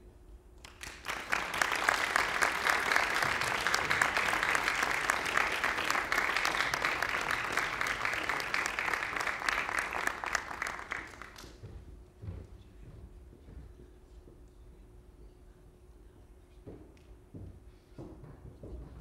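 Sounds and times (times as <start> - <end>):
audience applauding: 0.6 - 11.6.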